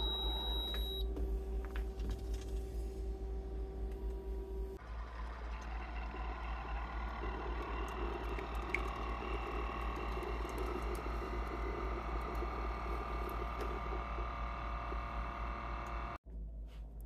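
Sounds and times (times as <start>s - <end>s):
coffee maker pump running: 4.8s - 16.2s
coffee streaming into mug: 5.8s - 15.0s.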